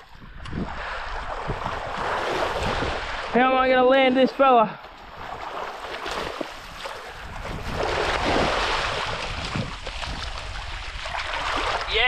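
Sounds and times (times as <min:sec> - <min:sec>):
wind on microphone: 0:00.0 - 0:03.4, 0:05.0 - 0:12.0
sea water splashing over rocks: 0:01.0 - 0:03.4, 0:05.2 - 0:12.0.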